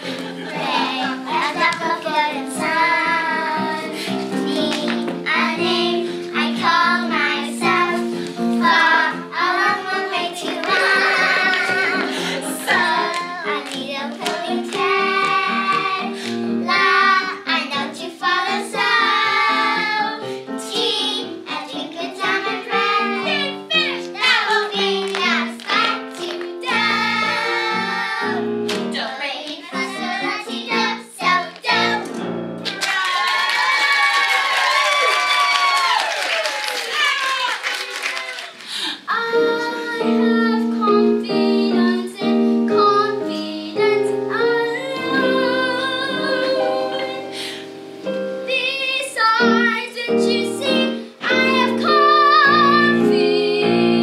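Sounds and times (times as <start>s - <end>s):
instrumental accompaniment: 0.0s - 29.2s
girls singing a show tune: 0.0s - 32.1s, 39.0s - 47.4s, 48.4s - 54.0s.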